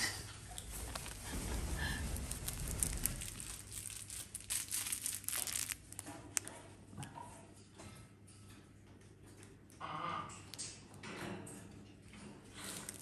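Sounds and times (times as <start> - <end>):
crinkle toy crackling: 0.6 - 6.6, 12.6 - 13.0.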